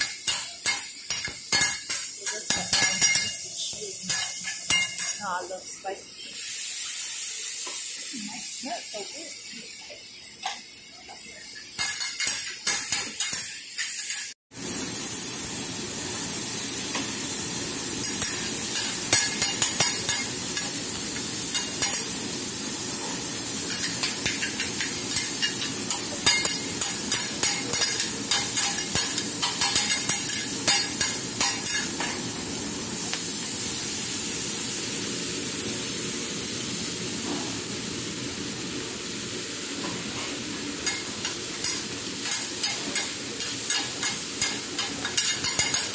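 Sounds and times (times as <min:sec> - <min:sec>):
metal spatulas clacking and scraping: 0:00.0 - 0:05.2, 0:10.4 - 0:14.4, 0:18.0 - 0:20.7, 0:21.5 - 0:22.1, 0:23.7 - 0:32.2, 0:40.8 - 0:45.9
food sizzling on griddle: 0:00.0 - 0:45.9.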